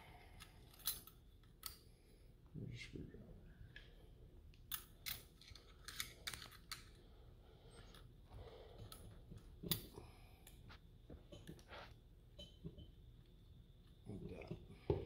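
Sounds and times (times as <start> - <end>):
small metal parts clicking: 0.4 - 1.8, 4.7 - 7.0.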